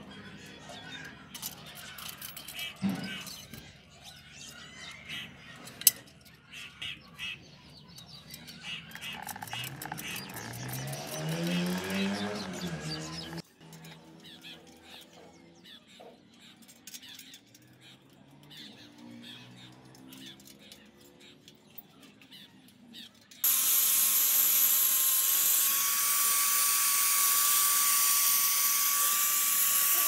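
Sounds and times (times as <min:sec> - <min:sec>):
angle grinder grinding metal: 0:08.5 - 0:14.4, 0:23.4 - 0:30.0.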